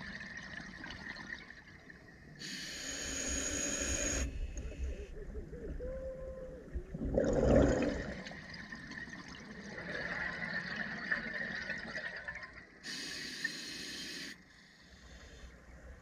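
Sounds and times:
hiss of air: 0:02.4 - 0:04.6, 0:12.8 - 0:14.4
bubbly regulator noise: 0:06.8 - 0:08.3.

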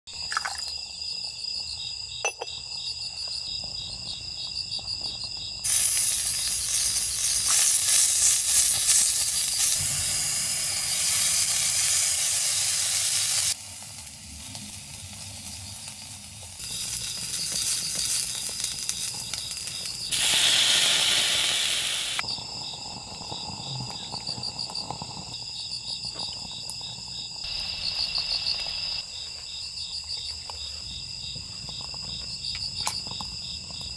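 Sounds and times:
crickets chirping: 0:00.2 - 0:14.1, 0:15.0 - 0:33.9
food sizzling in a pan: 0:05.6 - 0:29.0.

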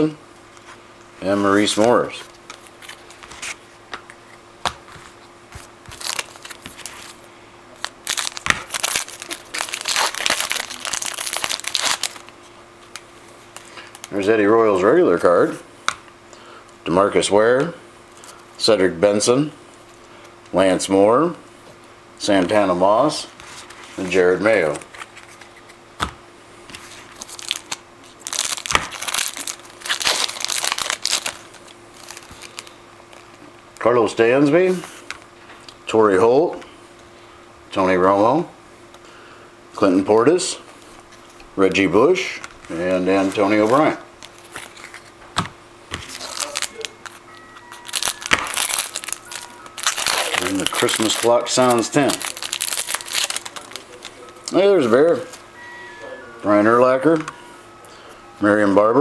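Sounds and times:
wrapper tearing and crinkling: 0:05.9 - 0:07.2, 0:07.8 - 0:13.0, 0:27.0 - 0:33.3, 0:46.0 - 0:54.3.

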